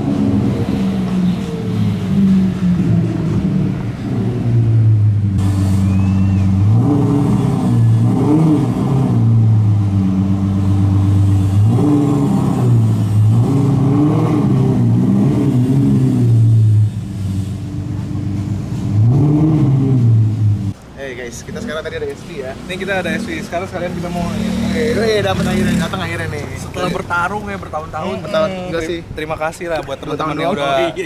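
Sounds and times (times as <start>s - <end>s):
sports car engine revving: 0.0s - 20.8s, 22.6s - 26.5s.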